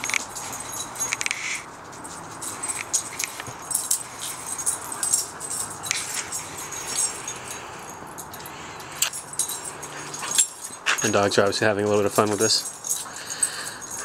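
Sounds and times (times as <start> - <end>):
dogs scuffling: 0.0 - 14.0
light jingles: 0.0 - 14.0.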